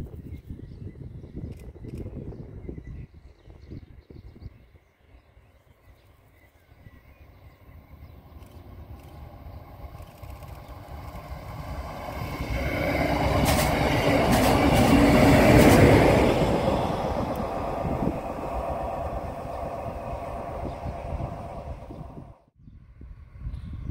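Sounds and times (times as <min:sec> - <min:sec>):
diesel railcar passing: 0:04.6 - 0:23.5
wheels clicking over rail joints: 0:08.5 - 0:20.2.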